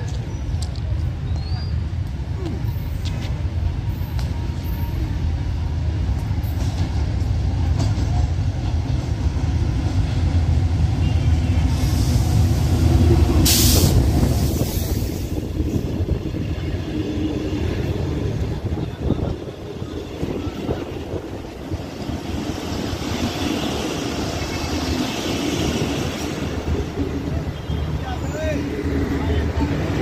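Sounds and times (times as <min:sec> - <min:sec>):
locomotive rumbling past: 0:00.9 - 0:30.0
brief hiss: 0:13.4 - 0:15.3.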